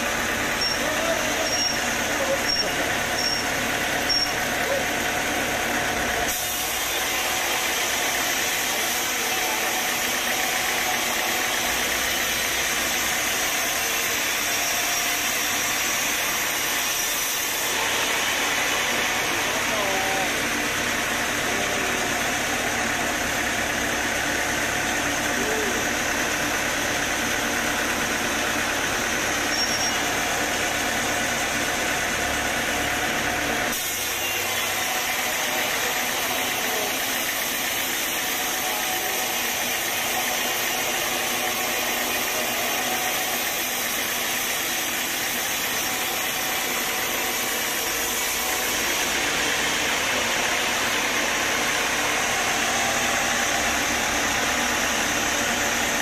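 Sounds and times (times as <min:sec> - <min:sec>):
machine motor hum: 0:00.0 - 0:56.0
saw blade cutting through wood: 0:06.2 - 0:22.4, 0:33.7 - 0:56.0.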